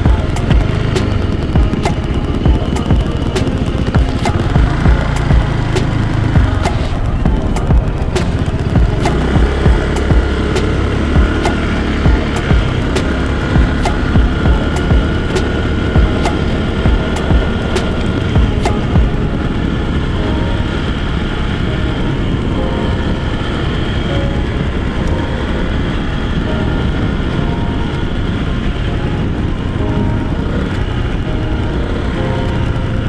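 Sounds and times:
low thumps: 0:00.0 - 0:19.2
scooter engine running: 0:00.0 - 0:33.0
wind and road noise: 0:00.0 - 0:33.0.

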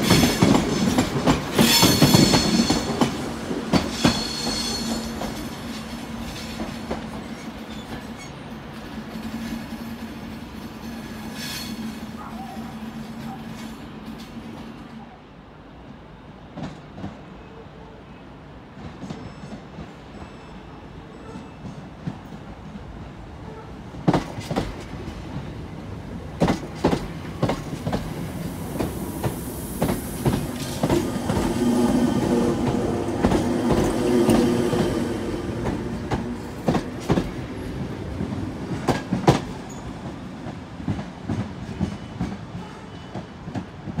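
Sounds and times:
train wheels clacking over rail joints: 0:00.0 - 0:14.7, 0:24.0 - 0:25.6, 0:26.4 - 0:44.0.

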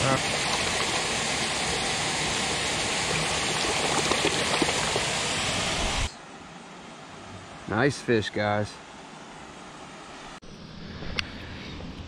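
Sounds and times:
small water splashes: 0:00.0 - 0:05.6
water flowing over concrete: 0:00.0 - 0:06.1.

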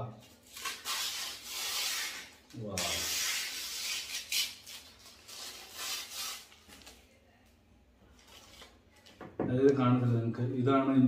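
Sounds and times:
plastic wrapping crinkling: 0:00.3 - 0:07.2, 0:08.1 - 0:09.2.

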